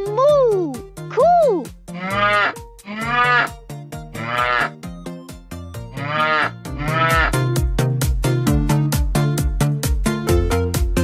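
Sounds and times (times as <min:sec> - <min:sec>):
children's backing tune: 0:00.0 - 0:11.0
toy cow mooing: 0:01.9 - 0:04.8, 0:05.9 - 0:07.4.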